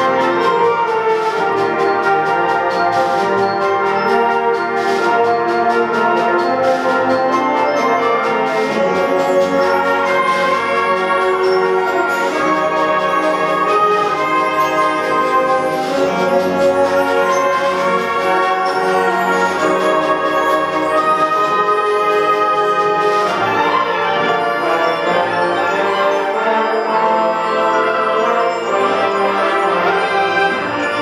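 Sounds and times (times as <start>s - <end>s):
concert band playing chords: 0.0s - 23.5s.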